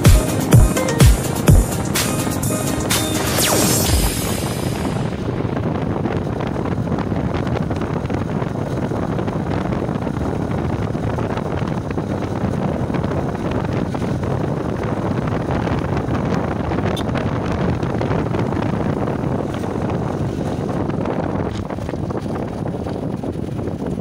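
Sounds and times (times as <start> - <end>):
wind rushing over microphone: 0.0 - 24.0
motorcycle riding: 5.2 - 24.0.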